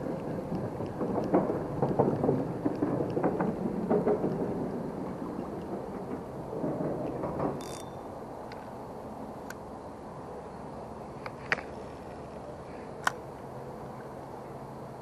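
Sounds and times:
clicks and knocks: 0.0s - 8.6s.

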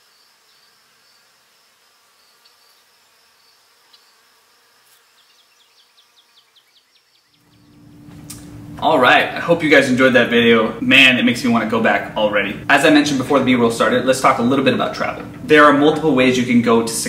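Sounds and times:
high-pitched insect buzz: 0.0s - 8.6s
quick insect chirps: 0.0s - 8.6s.

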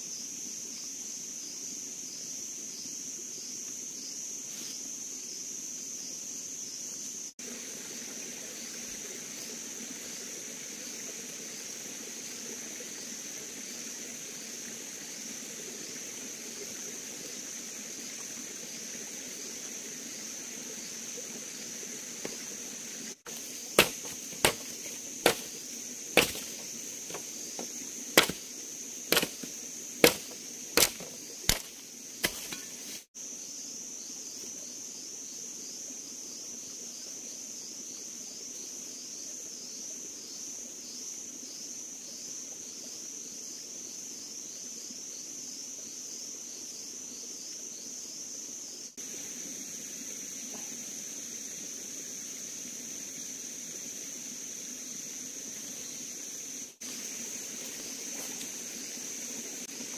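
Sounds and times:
insects chirping: 0.0s - 59.9s
machete chopping branch: 23.3s - 33.0s.

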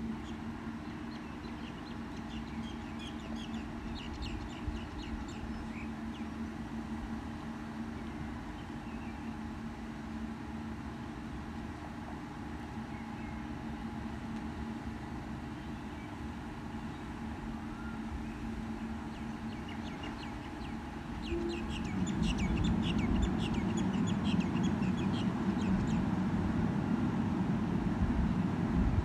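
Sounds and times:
diesel railcar idling hum: 0.0s - 29.0s
birds chirping: 0.2s - 6.4s, 15.5s - 26.2s.

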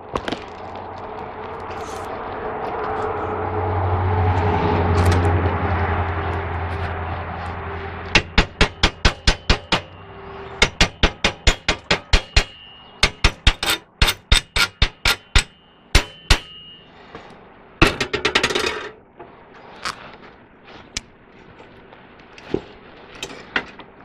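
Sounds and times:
chipping hammer striking steel: 8.1s - 10.0s, 10.6s - 16.9s.

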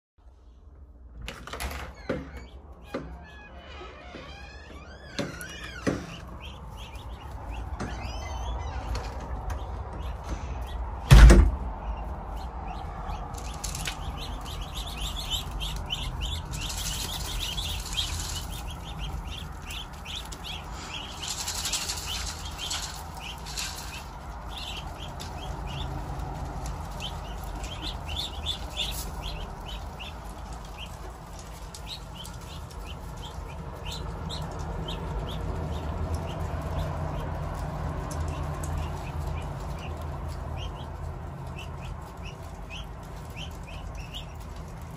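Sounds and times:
ducklings peeping: 1.7s - 44.9s
loud thump: 11.0s - 11.7s.

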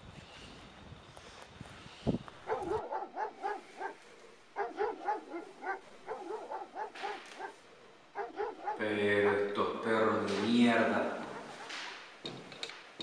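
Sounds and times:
dogs barking: 2.4s - 12.2s.

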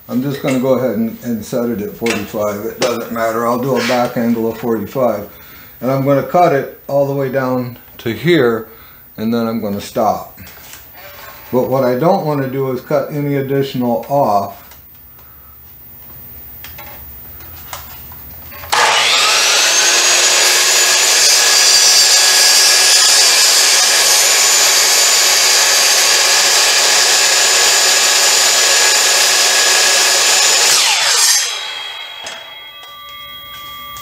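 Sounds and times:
saw cutting wood: 2.1s - 4.3s, 18.6s - 34.0s
miter saw whining: 18.6s - 34.0s.

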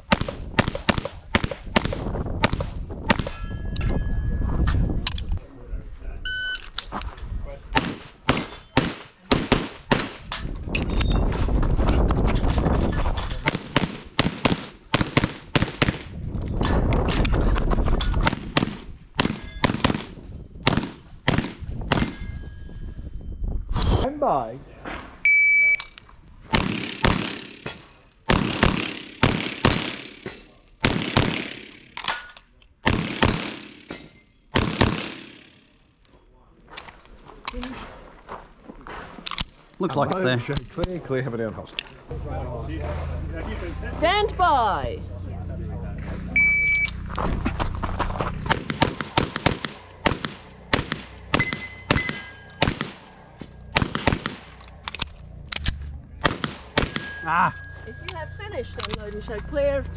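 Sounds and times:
pistol shots with echo: 7.7s - 10.2s, 13.4s - 16.0s, 18.2s - 22.2s, 26.5s - 32.1s, 32.8s - 35.6s, 48.5s - 54.6s, 56.2s - 57.2s
shot timer beep: 25.3s - 25.9s, 46.4s - 47.0s.

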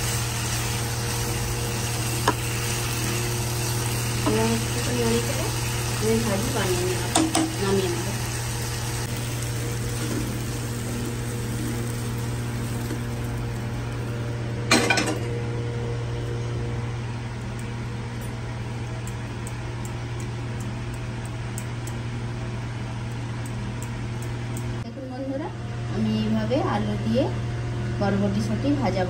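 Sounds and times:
steady low hum: 0.0s - 29.0s
metal cookware clank: 14.7s - 15.3s.

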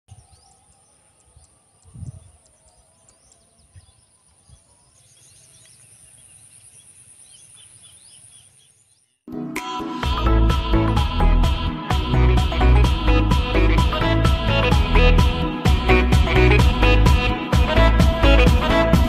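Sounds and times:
birds chirping: 0.1s - 9.3s.

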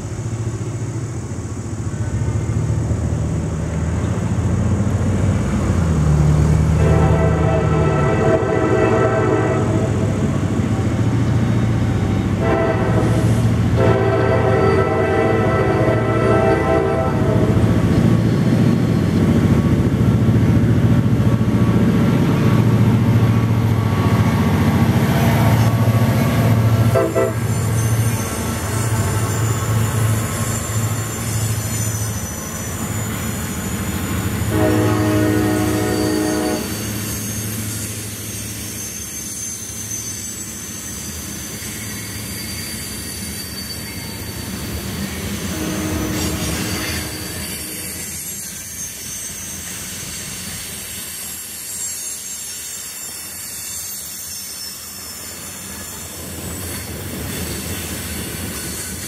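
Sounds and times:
diesel locomotive engines rumbling: 0.0s - 59.0s
steel wheels squealing on rail: 0.0s - 59.0s
train air horn: 6.7s - 10.2s, 12.4s - 17.6s, 26.8s - 27.7s, 34.4s - 37.0s, 45.5s - 48.1s.

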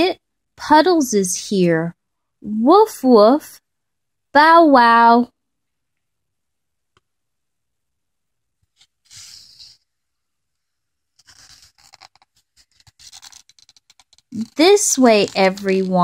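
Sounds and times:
paper page rustling: 8.7s - 9.9s, 11.1s - 16.0s
paper scraping: 8.7s - 9.9s, 11.1s - 16.0s.

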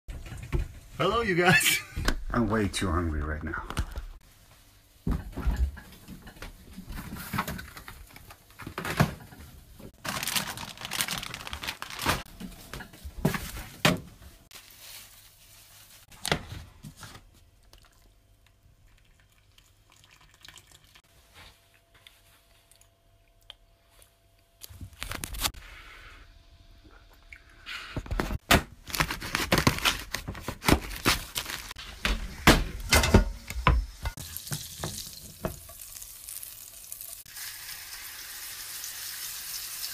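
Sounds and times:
cookware knocks and clinks: 32.9s - 34.2s
garlic sizzling in frying pan: 33.8s - 39.9s.

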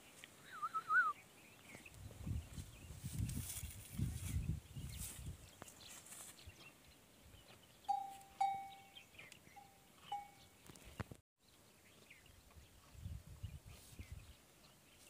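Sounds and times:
small metal bell clinking: 7.9s - 9.0s.

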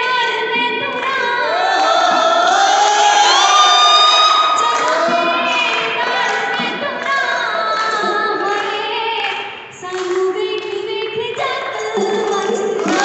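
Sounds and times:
woman singing folk song: 4.6s - 13.0s.

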